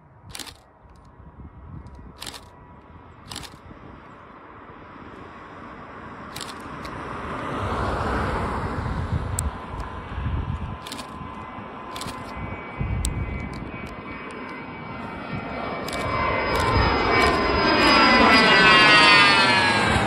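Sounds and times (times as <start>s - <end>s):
jet engine taking off: 0.1s - 20.0s
sharp clicks: 0.3s - 1.1s, 1.8s - 2.6s, 3.3s - 3.6s, 6.3s - 7.0s, 10.7s - 12.4s, 13.0s - 14.6s, 15.8s - 17.5s.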